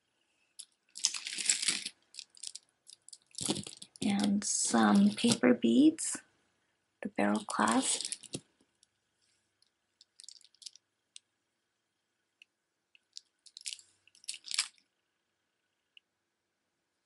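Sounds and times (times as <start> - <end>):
bead necklace clicking and rustling: 0.6 - 5.5, 7.3 - 9.0, 9.6 - 11.3, 13.0 - 14.9.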